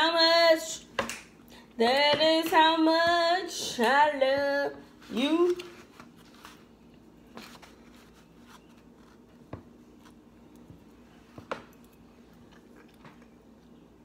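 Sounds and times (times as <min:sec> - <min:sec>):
faint low hum: 0:00.0 - 0:14.0
chewing: 0:11.8 - 0:13.8.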